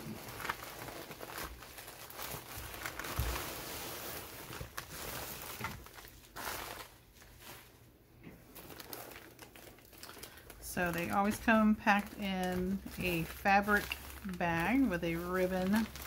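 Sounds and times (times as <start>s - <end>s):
plastic mailer crinkling: 0.0s - 7.8s, 8.4s - 16.0s.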